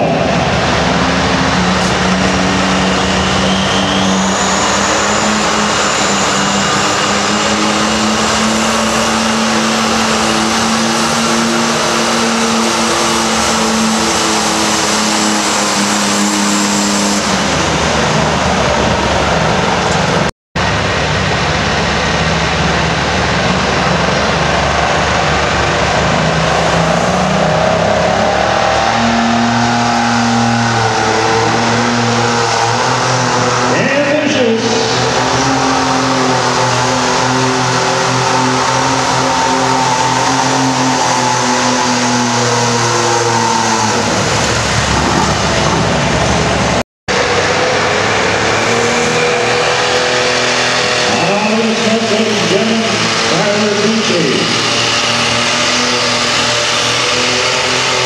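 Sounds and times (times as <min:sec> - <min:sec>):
diesel tractor engine revving: 0:00.0 - 0:58.0
second diesel tractor engine: 0:00.0 - 0:58.0
faint high whistle: 0:03.0 - 0:04.8.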